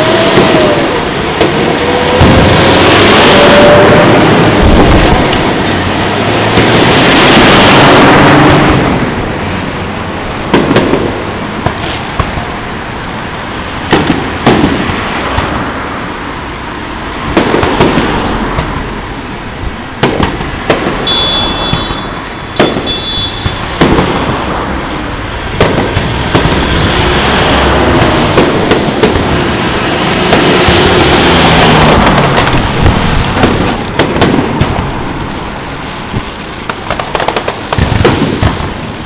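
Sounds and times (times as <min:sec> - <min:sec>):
distant fireworks bangs: 0:00.0 - 0:09.2, 0:10.3 - 0:12.7, 0:13.8 - 0:15.8, 0:17.2 - 0:19.0, 0:19.8 - 0:39.0
road traffic: 0:00.0 - 0:39.0
vehicle driving past: 0:24.0 - 0:33.5.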